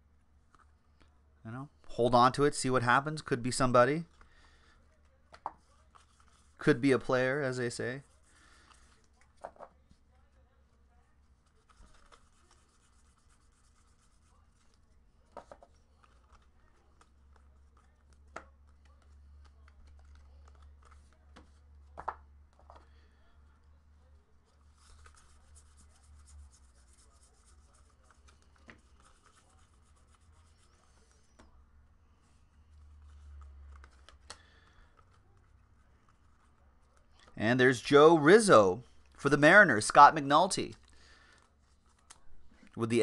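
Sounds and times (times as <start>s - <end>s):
trading cards rustling: 3.5s - 9.7s, 11.3s - 23.3s, 24.4s - 31.6s, 32.2s - 43.0s
cards clicking against stack: 33.3s - 35.2s.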